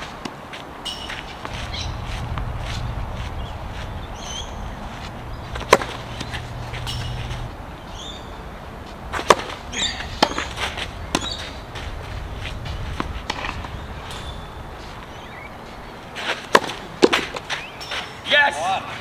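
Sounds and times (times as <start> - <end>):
tennis balls bouncing on court: 0.2 - 18.1
wind rumble on microphone: 1.3 - 9.8, 10.5 - 16.1
racket striking tennis ball: 4.2 - 8.3, 9.1 - 15.1, 16.1 - 18.0.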